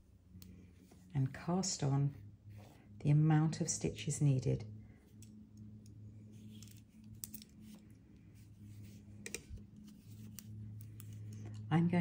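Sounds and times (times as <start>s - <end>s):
low hum: 0.0s - 12.0s
knitting needles clicking: 6.6s - 7.8s.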